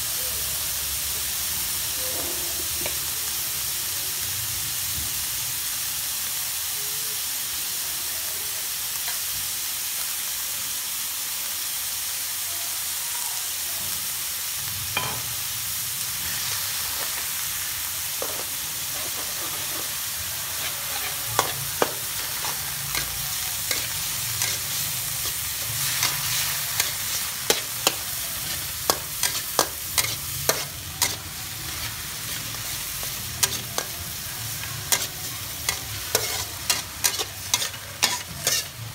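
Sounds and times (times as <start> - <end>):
meat sizzling in a wok: 0.0 - 38.9
metal spatula clanking on wok: 35.7 - 38.7.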